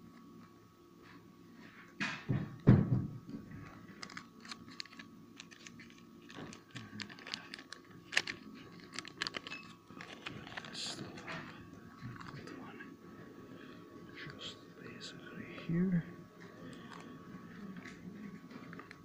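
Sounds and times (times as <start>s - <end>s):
plastic bag crinkling: 4.0s - 11.3s.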